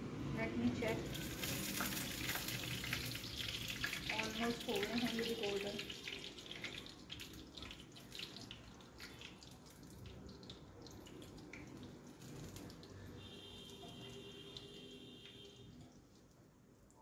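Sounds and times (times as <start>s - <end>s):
food sizzling in hot oil: 0.8s - 12.9s.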